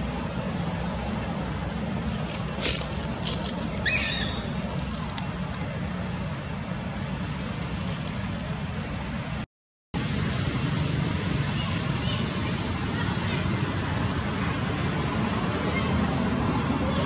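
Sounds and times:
low outdoor rumble: 0.0s - 9.4s, 10.0s - 17.0s
short high call falling in pitch: 3.8s - 4.5s.

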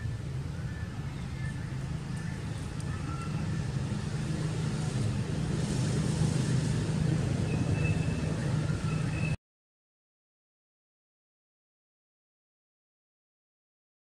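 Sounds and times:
low outdoor rumble: 0.0s - 9.4s.

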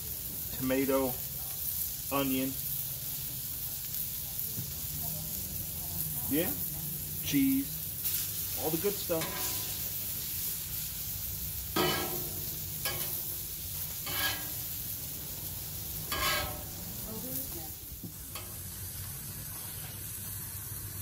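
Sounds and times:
burger patties sizzling: 0.0s - 21.0s
metal spatula scraping griddle: 8.0s - 17.6s, 18.3s - 20.0s.

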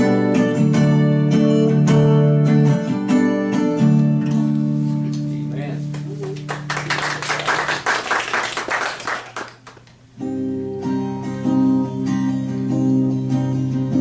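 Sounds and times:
strummed acoustic guitar chords: 0.0s - 6.1s, 10.1s - 14.0s.

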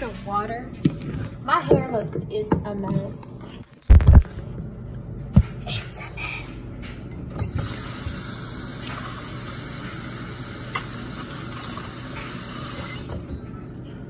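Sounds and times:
faucet water running into bowl: 7.5s - 13.0s.

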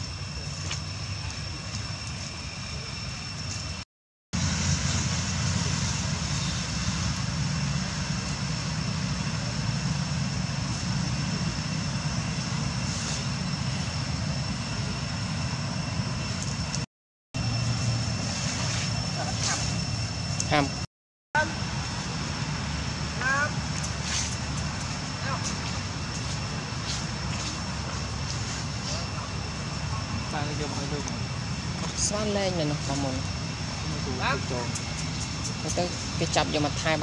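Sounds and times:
thin high whine: 4.4s - 20.8s.

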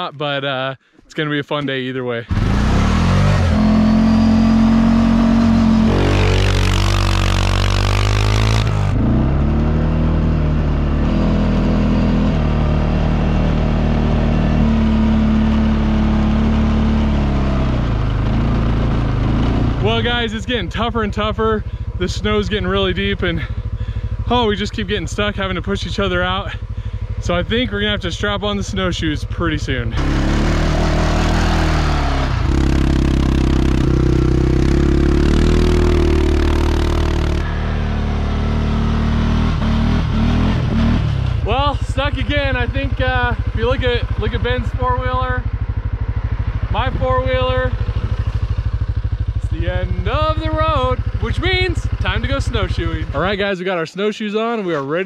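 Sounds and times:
tyres churning through snow: 2.3s - 10.0s, 30.0s - 45.2s
atv engine running: 2.3s - 53.5s.

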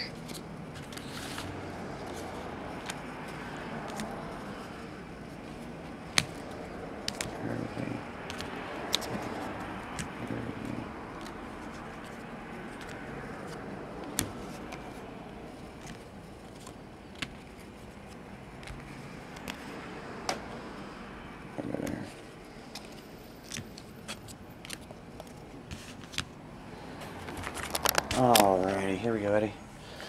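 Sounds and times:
cards clicking on table: 0.1s - 4.2s, 5.4s - 15.1s, 15.7s - 20.5s, 22.7s - 26.3s, 27.2s - 28.5s.

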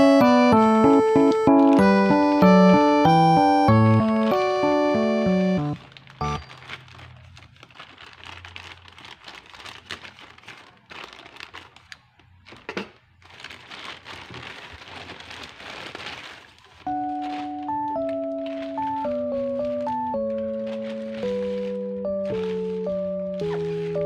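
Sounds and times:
background music: 0.0s - 6.4s, 16.9s - 24.0s
plastic mailer bag crinkling: 5.7s - 24.0s.

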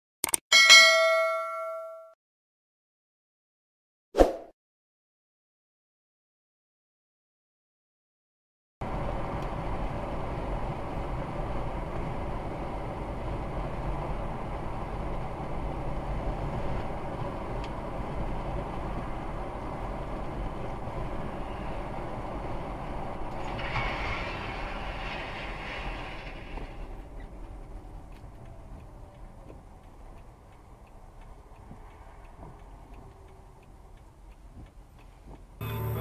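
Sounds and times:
car road and engine rumble: 8.8s - 36.0s.

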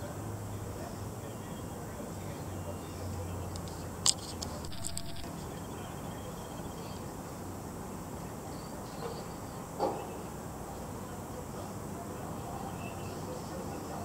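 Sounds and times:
steady background hiss: 0.0s - 14.0s
faint insect chirring: 3.4s - 7.2s.

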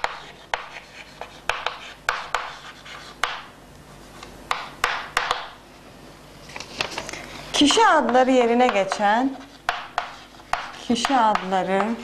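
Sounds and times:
chalk scratching: 0.0s - 3.4s, 8.7s - 12.0s
chalk tapping on chalkboard: 0.0s - 3.5s, 4.5s - 5.6s, 7.7s - 12.0s.

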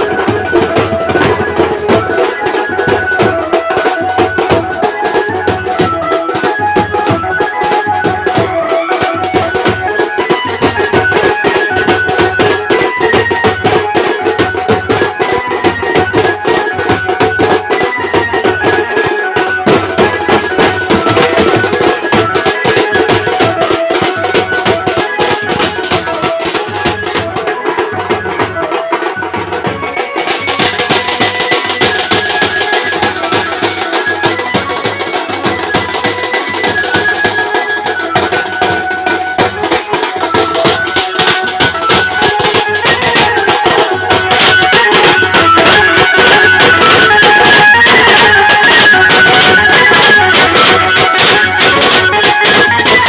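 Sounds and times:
side drums drumming: 0.0s - 53.0s
keyboard melody through loudspeaker: 32.0s - 53.0s.

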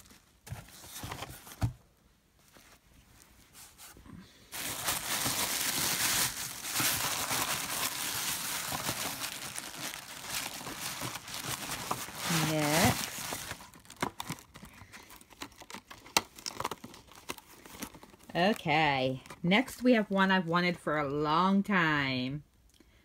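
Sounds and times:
tissue paper crinkling: 2.4s - 18.6s.

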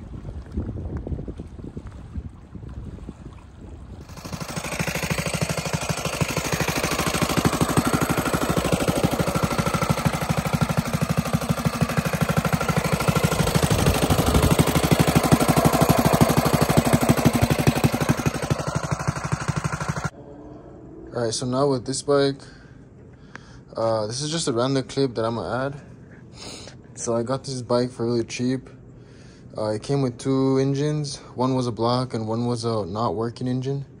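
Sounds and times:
small engine running: 4.0s - 20.2s.

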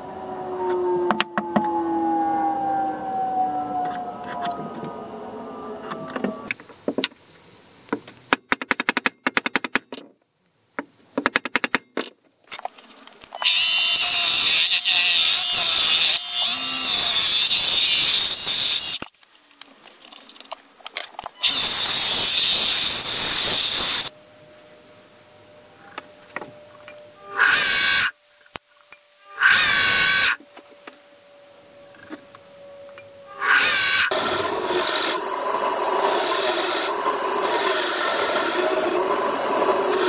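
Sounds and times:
lathe tool cutting wood hiss: 21.4s - 24.1s, 33.4s - 40.0s.

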